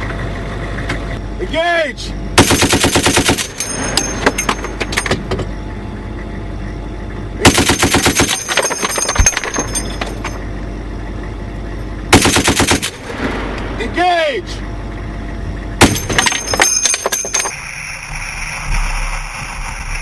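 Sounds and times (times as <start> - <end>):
machine gun bursts: 2.4 - 4.0, 7.4 - 9.9, 12.1 - 13.1
metallic ringing and clinking: 3.4 - 5.6, 8.1 - 10.6, 15.8 - 17.8.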